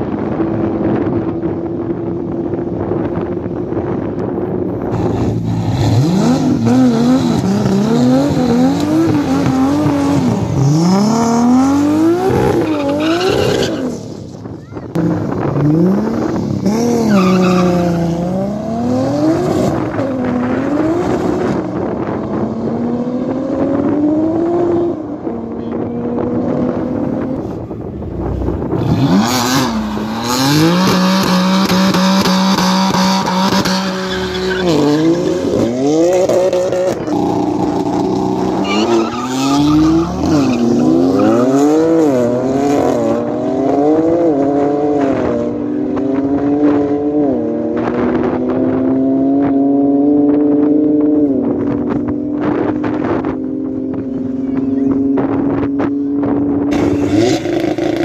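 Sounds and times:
car engines revving: 0.0s - 58.0s
tyre squeal: 33.6s - 35.7s, 38.6s - 41.7s.

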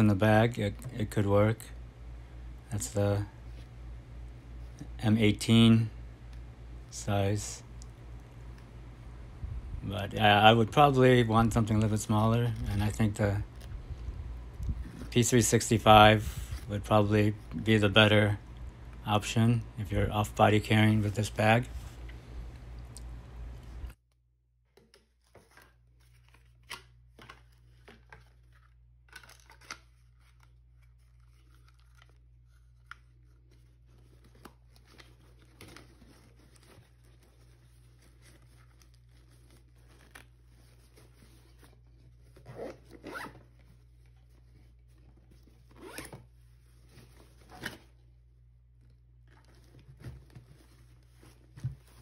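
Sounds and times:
low hum: 0.0s - 24.2s
cloth rustling: 29.6s - 52.0s
zipper pulled: 42.4s - 43.4s, 45.7s - 46.3s.

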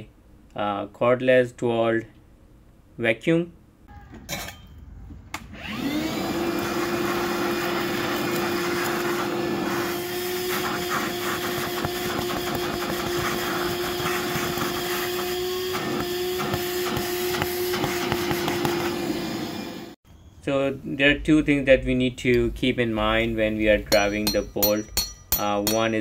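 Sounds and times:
vacuum cleaner running: 5.5s - 20.0s.

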